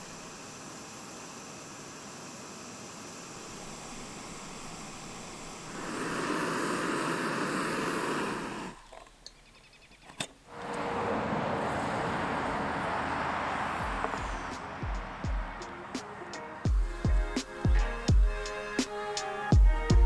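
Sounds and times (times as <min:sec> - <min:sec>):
vehicle road noise: 0:10.2 - 0:16.7.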